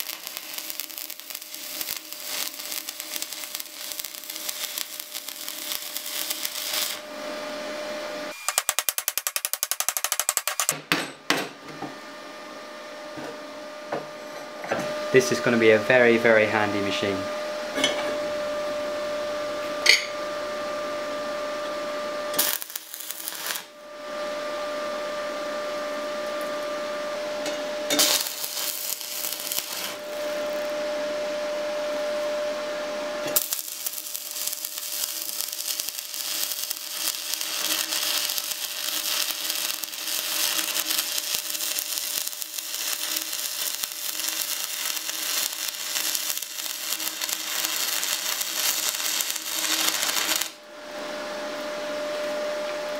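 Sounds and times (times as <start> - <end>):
welding arc crackling: 0.0 - 7.1, 8.4 - 10.7, 22.3 - 23.8, 27.9 - 30.9, 33.2 - 50.6
electrical whine: 0.0 - 9.0, 11.8 - 52.9.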